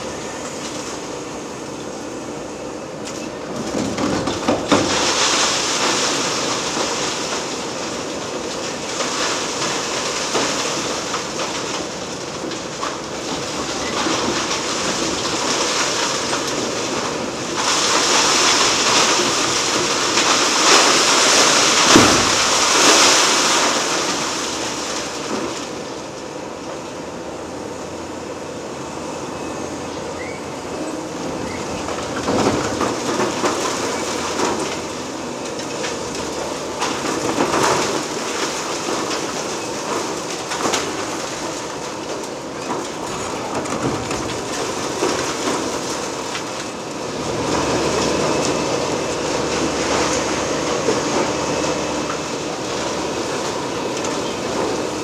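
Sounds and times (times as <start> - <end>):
concrete and rubble crunching: 17.6 - 25.0.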